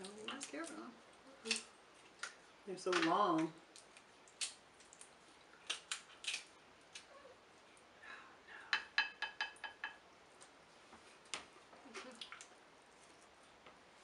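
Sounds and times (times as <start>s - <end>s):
crab shells cracking: 1.4s - 7.1s.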